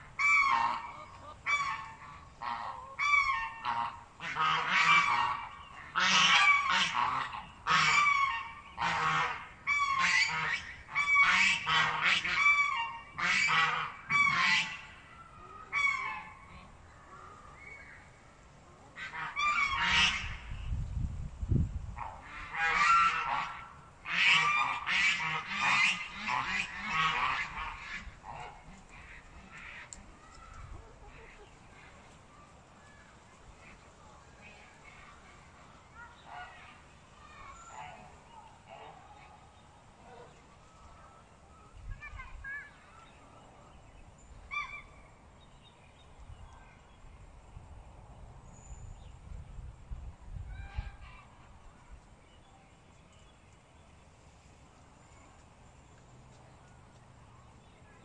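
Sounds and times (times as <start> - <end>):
hen squawking: 0.2 - 14.9.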